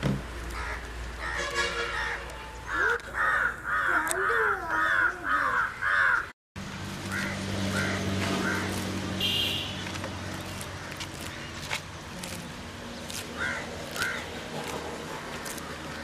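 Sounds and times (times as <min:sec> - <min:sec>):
bird harsh calls: 0:00.6 - 0:06.3.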